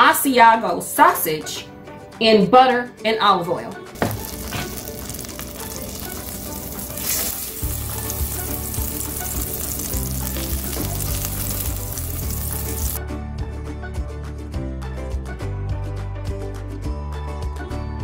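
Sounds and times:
butter sizzling in a pan: 4.0 - 13.0
background music with bass: 4.0 - 18.0.

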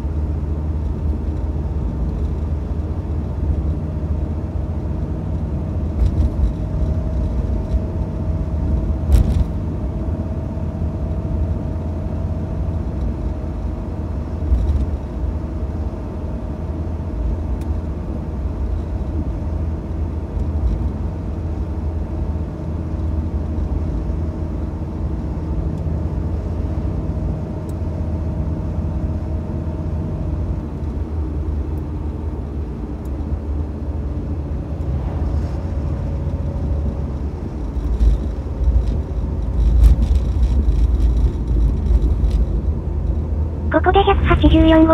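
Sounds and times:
car engine and road rumble: 0.0 - 44.9.

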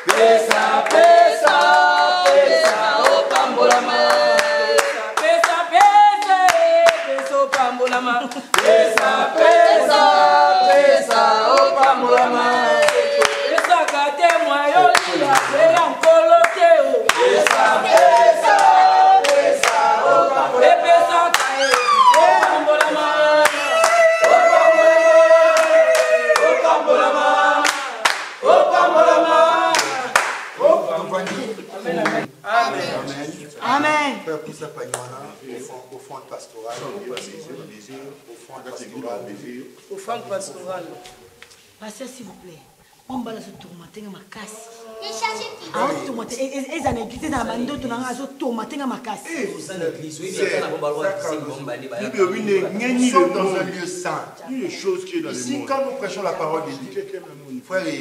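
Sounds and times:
hands clapping along: 0.0 - 9.6, 10.7 - 19.9, 21.3 - 24.4, 25.5 - 26.5, 27.6 - 28.4, 29.7 - 30.6
group singing a worship song: 0.0 - 43.6.

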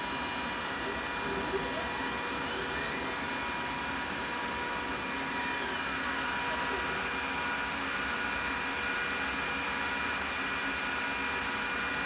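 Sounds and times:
steady hum tones: 0.0 - 8.0
cooling fans rushing: 0.0 - 12.0
faint machine whine: 0.0 - 12.0.

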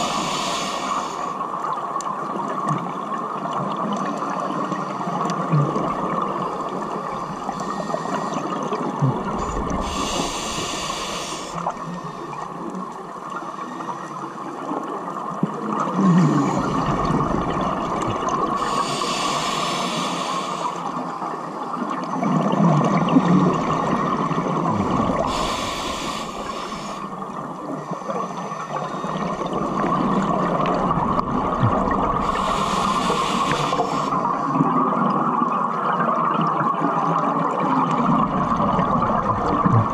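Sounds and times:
scuba regulator hissing inhale: 0.0 - 1.4, 7.1 - 8.6, 9.4 - 12.4, 18.5 - 21.0, 25.1 - 29.4, 32.2 - 34.4
underwater hum: 0.0 - 39.9
exhaled air bubbling: 3.4 - 39.9.

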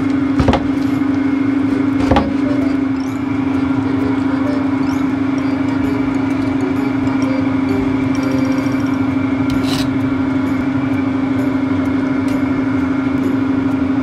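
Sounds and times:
low machine hum: 0.0 - 14.0
short scrape: 9.5 - 9.9.

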